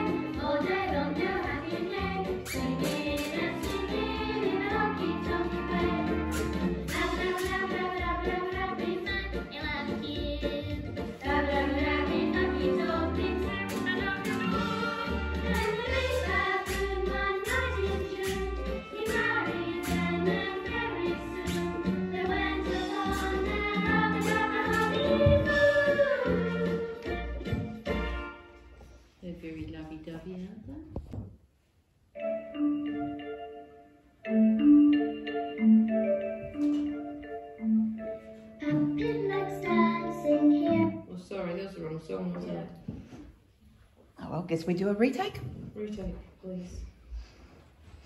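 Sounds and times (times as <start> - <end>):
children's-style song with beat: 0.0 - 29.1, 32.2 - 41.1.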